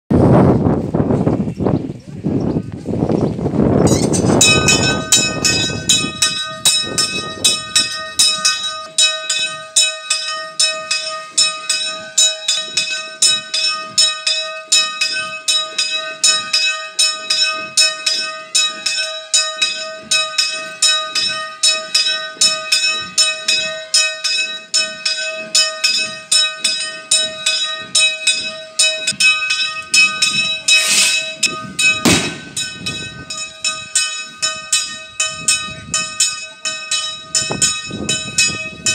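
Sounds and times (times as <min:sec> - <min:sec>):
church bell ringing: 0:04.3 - 0:38.9
sharp bang: 0:30.7 - 0:32.8.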